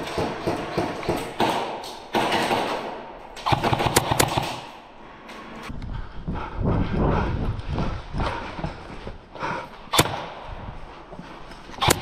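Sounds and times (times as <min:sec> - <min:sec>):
airsoft guns firing: 0:00.0 - 0:04.8.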